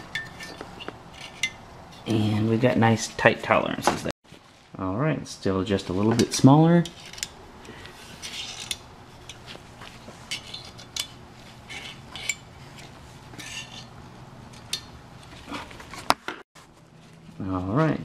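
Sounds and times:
metal engine parts clinking: 0:00.0 - 0:02.5, 0:10.2 - 0:15.0.

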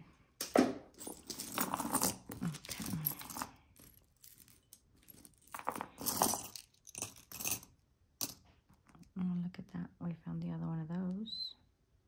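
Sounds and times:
jewelry clinking and rattling: 0:00.4 - 0:08.5.

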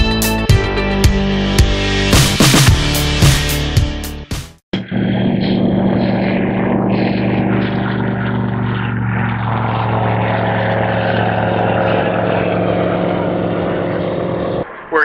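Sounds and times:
propeller plane engine drone: 0:04.7 - 0:15.0.

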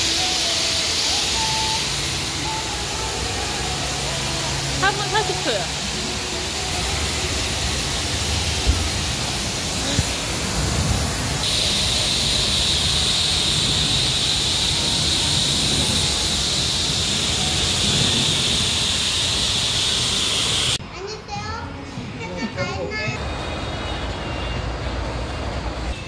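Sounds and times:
pressure washer spray hissing: 0:00.0 - 0:20.8.

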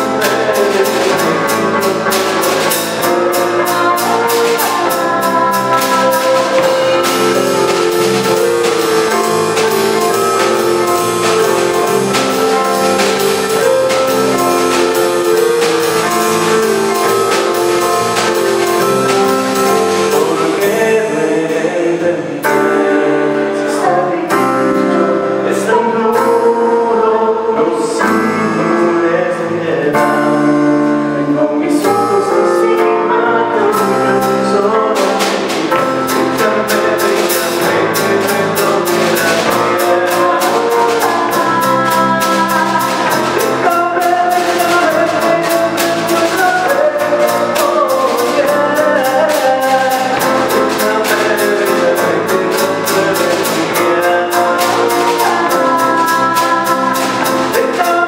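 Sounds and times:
electric bass: 0:00.0 - 0:22.8
cymbals keeping a beat: 0:00.0 - 0:26.6, 0:31.8 - 0:58.0
drum kit: 0:00.0 - 0:26.8, 0:31.8 - 0:58.0
woman singing: 0:00.0 - 0:30.4, 0:31.2 - 0:58.0
keyboard: 0:00.0 - 0:58.0.

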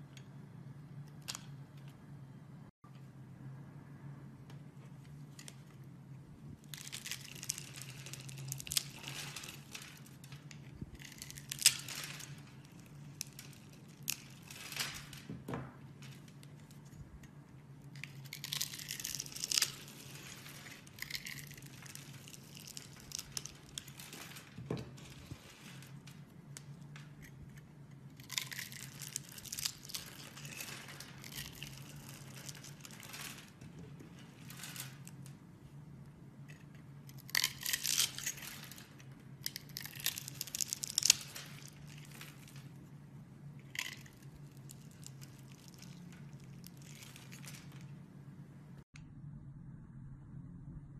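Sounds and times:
faint low hum: 0:00.0 - 0:50.9
soap cubes crackling: 0:06.6 - 0:15.3, 0:17.9 - 0:24.3, 0:28.1 - 0:33.6, 0:37.1 - 0:42.7.

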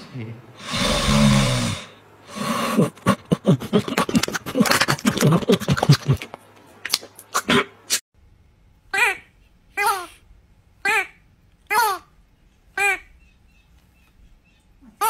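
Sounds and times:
dog snoring: 0:00.6 - 0:02.9
dog grunting: 0:00.6 - 0:06.3.

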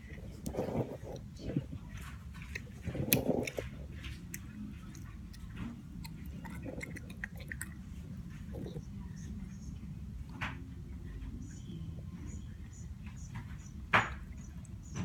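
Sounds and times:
child chewing candy: 0:00.0 - 0:10.3.

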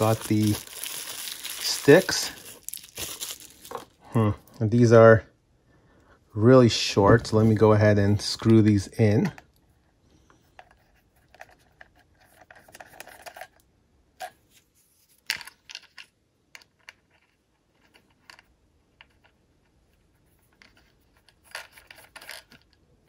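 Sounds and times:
controller being handled: 0:00.0 - 0:04.0, 0:10.5 - 0:13.6.

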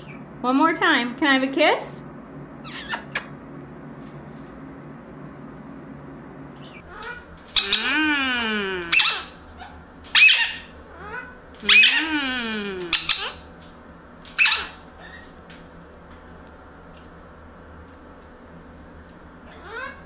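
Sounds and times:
parrot calling: 0:06.6 - 0:13.6, 0:14.3 - 0:15.4, 0:19.5 - 0:20.0.

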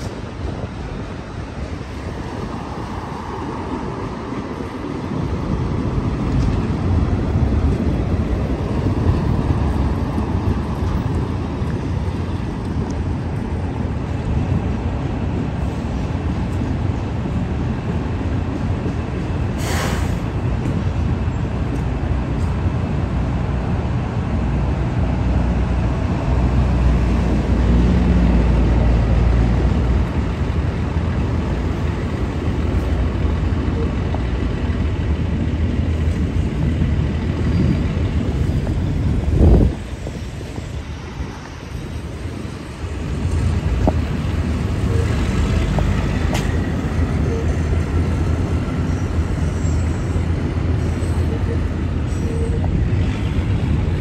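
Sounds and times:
freight cars rumbling past: 0:00.0 - 0:54.0
road vehicles driving by: 0:00.0 - 0:54.0
short hiss: 0:19.6 - 0:20.3.

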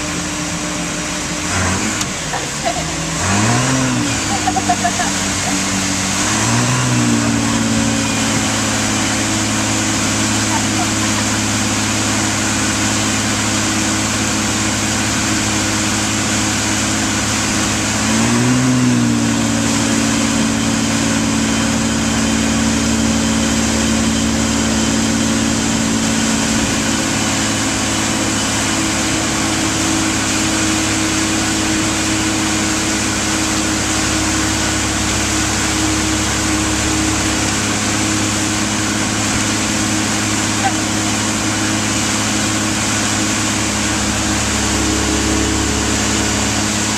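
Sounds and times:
motorboat engine running: 0:00.0 - 0:46.9
rushing water noise: 0:00.0 - 0:46.9.

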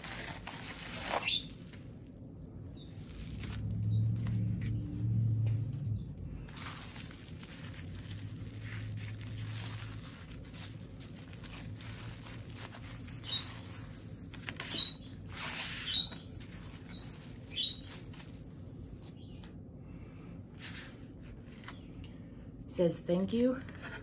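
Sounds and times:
packaging rustling and crinkling: 0:00.0 - 0:04.4, 0:06.4 - 0:19.2.

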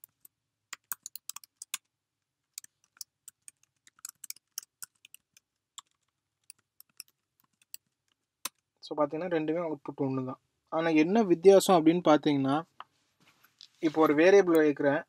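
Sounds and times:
typing on computer keyboard: 0:00.0 - 0:01.8, 0:02.6 - 0:07.8.

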